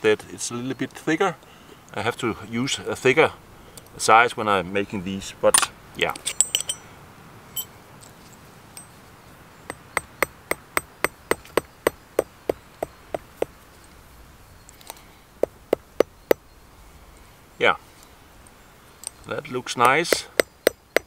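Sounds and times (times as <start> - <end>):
hammer tapping on anvil: 9.7 - 13.5, 19.8 - 21.0.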